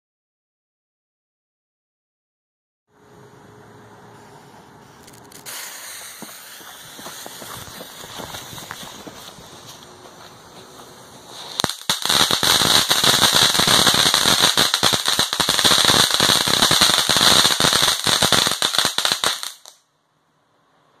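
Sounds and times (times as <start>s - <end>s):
firework fountain hissing and crackling: 4.2s - 19.8s.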